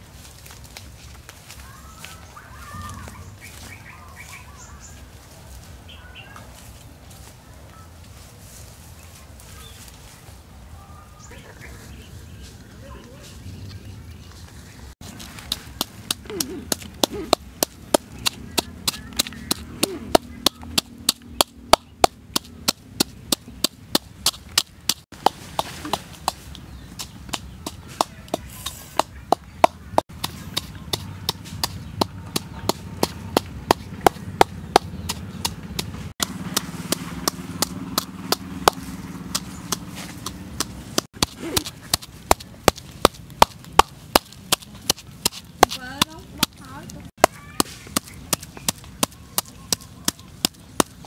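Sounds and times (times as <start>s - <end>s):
wooden pestle knocking in mortar: 15.3s - 46.6s, 47.2s - 51.0s.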